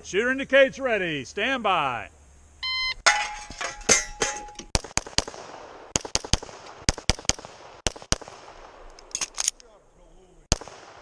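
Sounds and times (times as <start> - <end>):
pistol shots: 4.7 - 9.5, 10.5 - 11.0.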